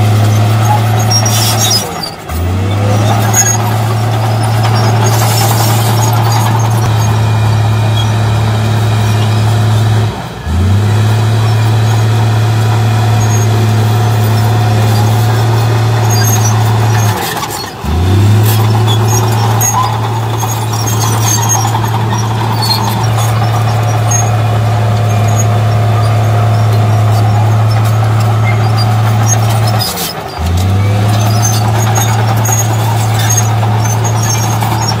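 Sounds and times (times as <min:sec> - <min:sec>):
blade pushing soil: 0:00.0 - 0:10.0, 0:10.7 - 0:35.0
bulldozer diesel engine running hard: 0:00.0 - 0:35.0.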